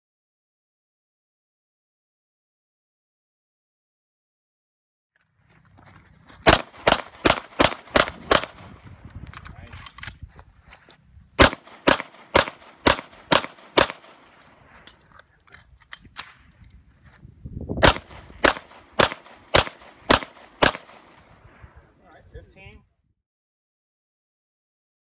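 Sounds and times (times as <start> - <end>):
pistol shots: 6.4 - 8.7, 11.4 - 14.4, 17.8 - 21.2.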